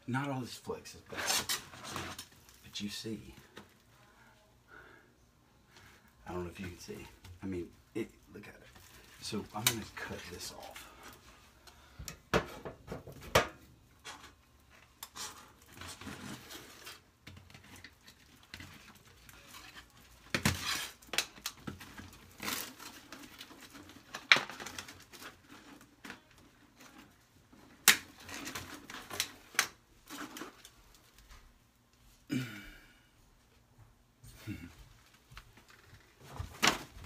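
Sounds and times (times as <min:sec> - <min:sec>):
foil duct crinkling: 0:17.8 - 0:31.2.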